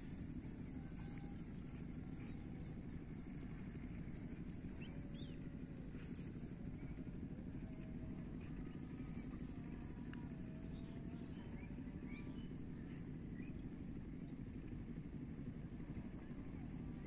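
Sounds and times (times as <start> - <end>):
small birds chirping: 1.4 - 6.2.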